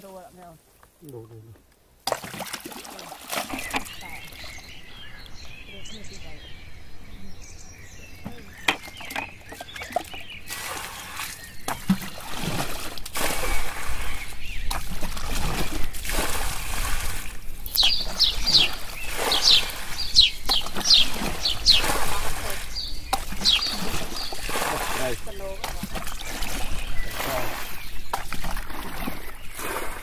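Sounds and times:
water sloshing and splashing: 0:02.0 - 0:05.6, 0:08.2 - 0:30.0.

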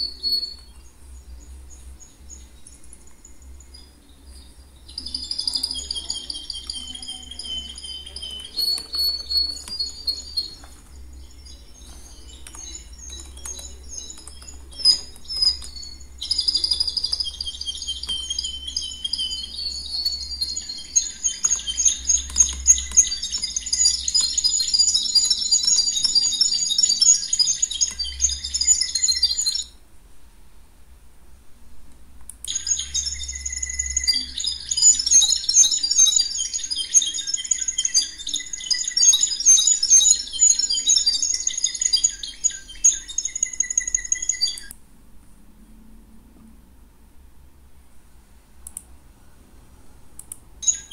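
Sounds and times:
small birds chirping: 0:00.0 - 0:29.9, 0:31.6 - 0:44.8, 0:50.2 - 0:50.9
low steady hum: 0:00.0 - 0:39.0, 0:41.2 - 0:50.9.

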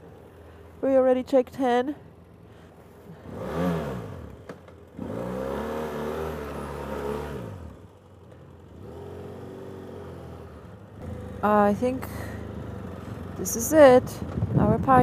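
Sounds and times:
motorcycle engine accelerating: 0:03.0 - 0:15.0.

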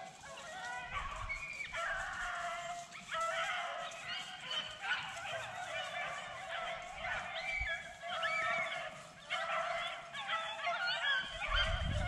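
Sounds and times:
dogs baying: 0:00.0 - 0:12.0.

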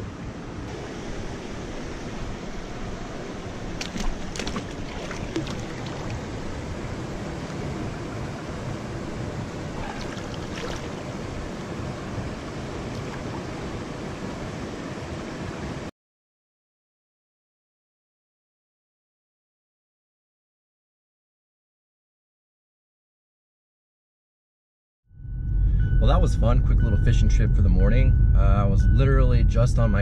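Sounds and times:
river water rushing: 0:00.4 - 0:15.9.

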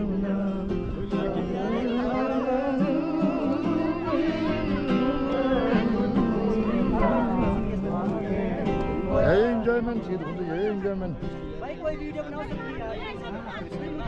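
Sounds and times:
person singing a melody: 0:00.0 - 0:09.8.

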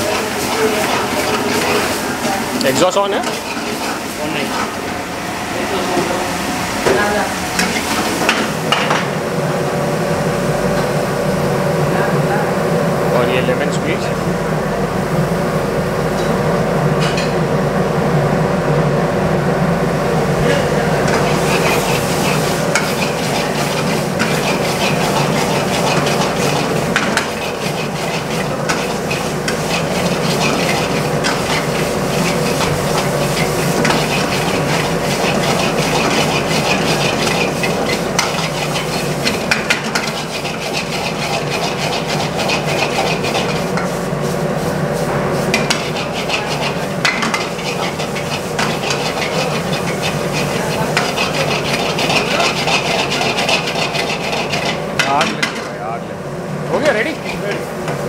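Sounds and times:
gas flame roar: 0:00.0 - 0:58.0
ladle clinking and scraping pan: 0:45.5 - 0:55.7.

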